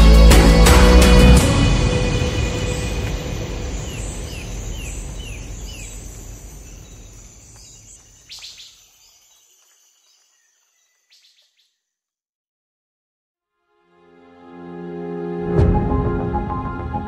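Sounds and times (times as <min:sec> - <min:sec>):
birds chirping: 0:01.8 - 0:12.0.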